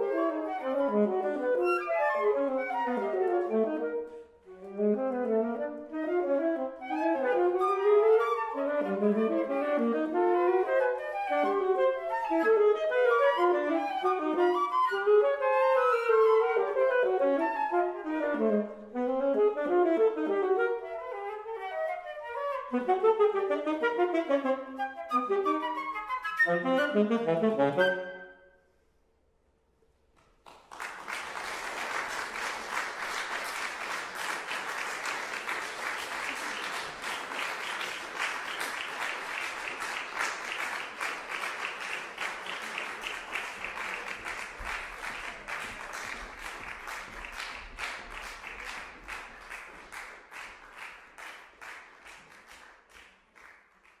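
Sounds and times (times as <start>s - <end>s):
audience applauding: 30.4s - 54.0s.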